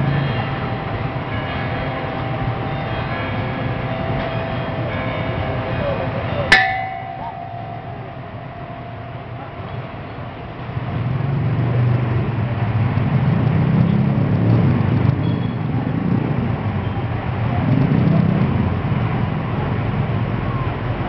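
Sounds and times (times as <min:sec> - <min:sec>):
crowd hubbub: 0:00.0 - 0:14.3.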